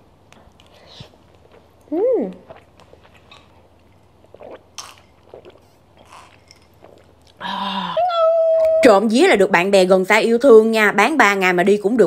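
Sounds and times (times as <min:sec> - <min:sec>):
chewing: 0:00.3 - 0:07.4.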